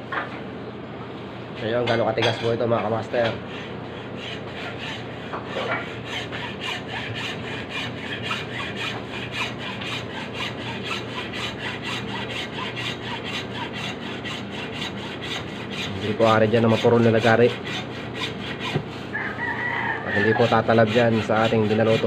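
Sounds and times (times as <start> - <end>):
hacksaw rasping through hard block: 3.5 - 19.1, 20.2 - 22.0.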